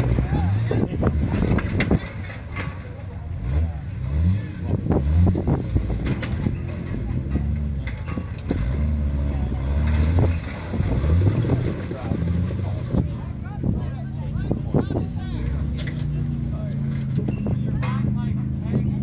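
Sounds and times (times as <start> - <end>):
engine revving under load: 0.0 - 19.0.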